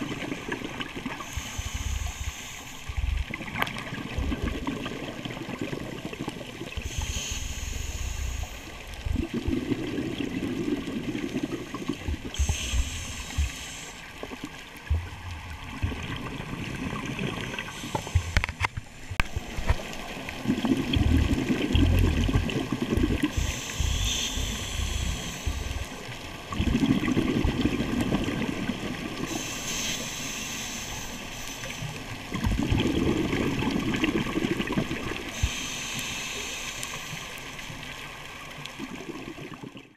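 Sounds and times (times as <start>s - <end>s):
exhaled bubbles rushing: 0.0s - 1.4s, 2.9s - 7.0s, 9.0s - 13.6s, 14.2s - 18.6s, 19.2s - 29.4s, 32.2s - 35.5s, 38.5s - 39.9s
diver inhaling through regulator: 1.2s - 2.9s, 6.8s - 8.7s, 12.3s - 14.1s, 23.2s - 26.0s, 29.3s - 31.8s, 35.3s - 37.5s.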